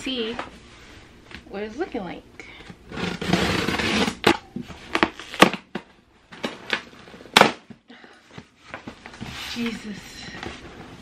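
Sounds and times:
scissors scraping packing tape: 2.9 - 4.4
tape and cardboard ripping: 2.9 - 5.8.

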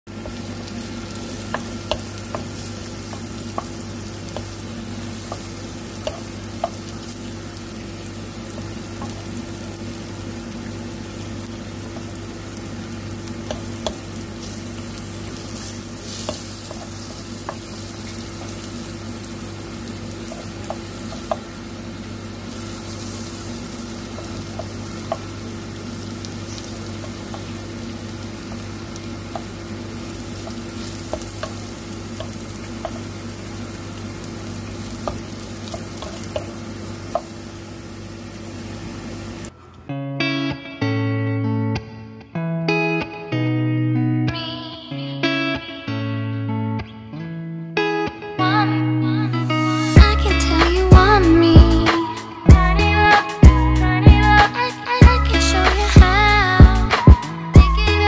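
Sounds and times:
mushrooms sizzling in oil: 0.1 - 39.5, 49.4 - 51.8
spatula clicking against pan: 5.3 - 6.8.

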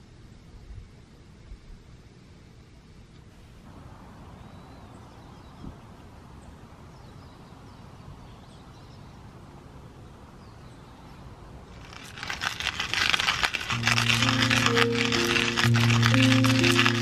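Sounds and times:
low woodland background: 0.1 - 17.0
faint bird chirps: 4.3 - 9.3.

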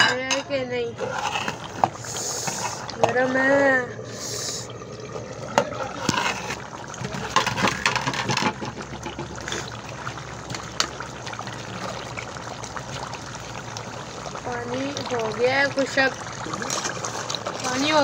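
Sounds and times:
thick curry bubbling and popping: 4.7 - 18.0.

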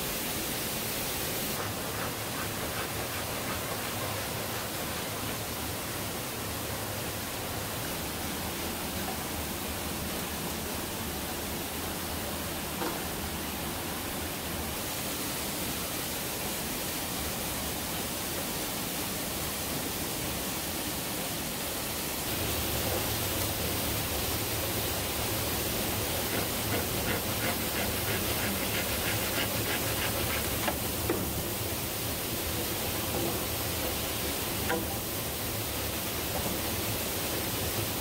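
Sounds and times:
waterfall roaring: 0.0 - 38.0
faint ticks and knocks: 25.7 - 31.6, 32.6 - 35.3.

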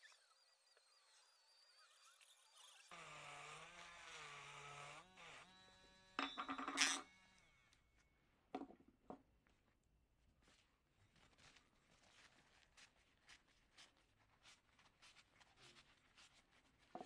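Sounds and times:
rotary tool whining: 0.0 - 8.0.

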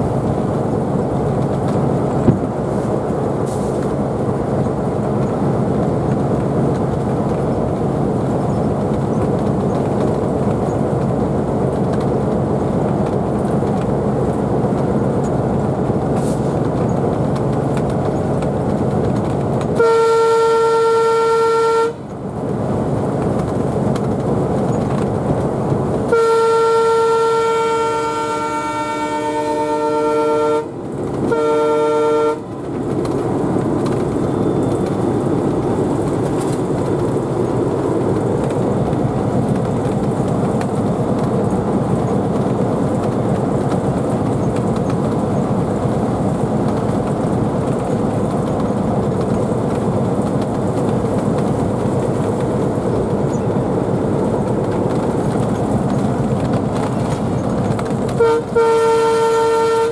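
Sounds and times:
train wheels on rails: 0.0 - 59.9
locomotive air horn blasts: 19.8 - 22.0, 26.1 - 32.5, 58.1 - 59.9.

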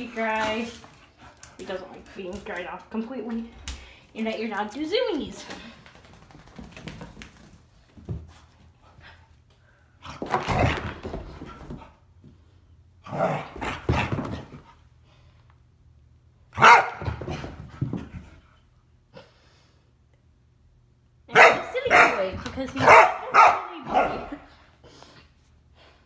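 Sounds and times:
dog barking excitedly: 16.5 - 17.4, 21.3 - 24.4.

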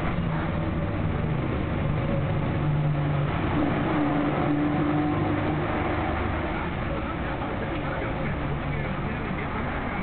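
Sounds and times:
low hum shifting in pitch: 0.0 - 7.1
motor vehicle rumbling: 0.0 - 10.0.

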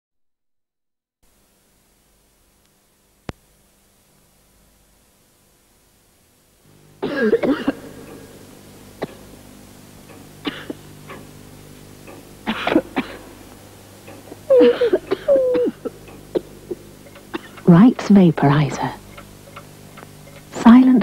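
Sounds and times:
faint steady hum: 1.2 - 21.0
person coughing: 7.0 - 8.2, 10.4 - 10.8, 12.5 - 13.3, 14.5 - 17.6.

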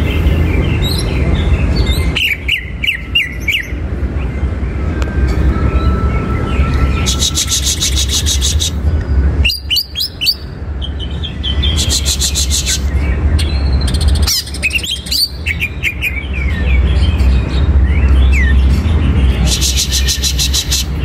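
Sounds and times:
bird singing whistled chirps: 4.7 - 8.8, 9.4 - 17.2.

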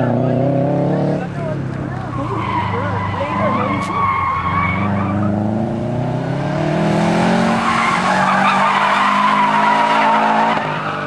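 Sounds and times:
car engine revving hard: 0.0 - 1.5, 2.6 - 10.8
tyres squealing: 1.8 - 5.5, 7.4 - 11.0.

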